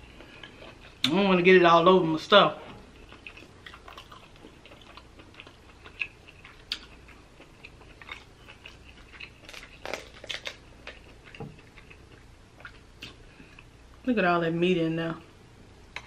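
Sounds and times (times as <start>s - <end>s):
crab shell cracking: 9.2s - 11.5s.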